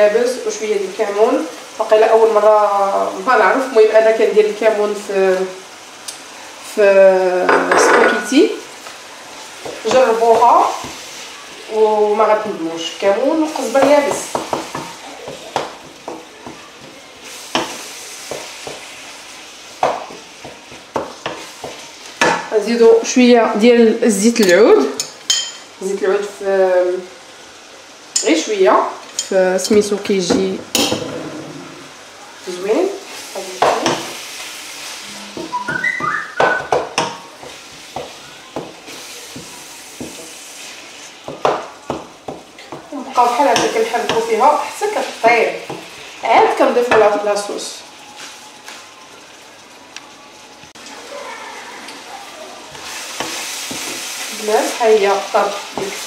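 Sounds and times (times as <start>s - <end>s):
food sizzling in a frying pan: 0.0s - 56.0s
wooden spoon scraping a pan: 30.7s - 32.0s.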